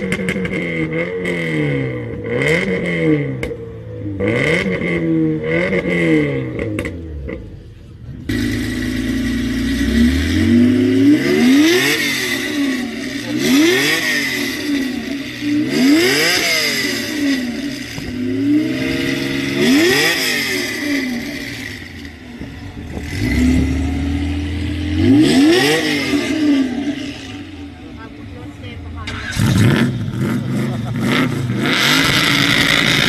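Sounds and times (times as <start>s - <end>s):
car engine revving: 0.0s - 33.0s
car engine idling: 7.4s - 33.0s.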